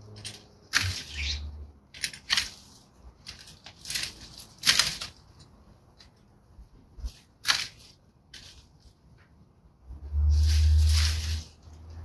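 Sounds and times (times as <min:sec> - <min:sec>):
dry branches rustling: 0:00.0 - 0:12.0
loppers snipping branches: 0:00.1 - 0:05.5, 0:07.0 - 0:08.7.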